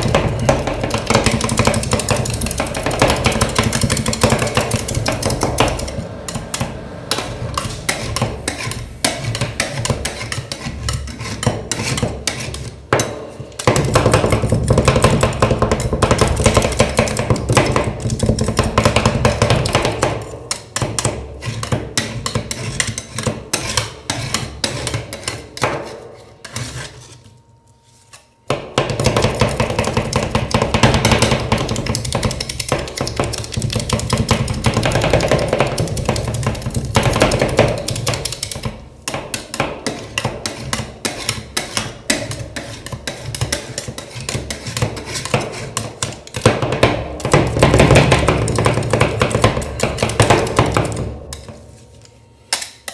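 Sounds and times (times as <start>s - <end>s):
metal spatulas chopping and scraping: 0.0s - 52.9s.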